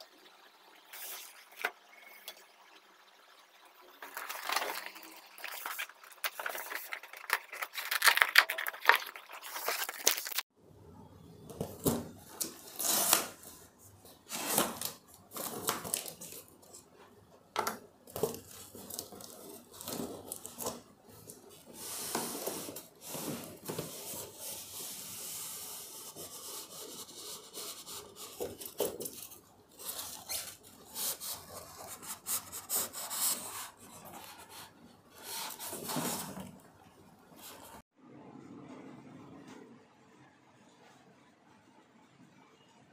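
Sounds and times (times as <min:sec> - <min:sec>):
hands handling cardboard packaging: 0:04.1 - 0:10.4.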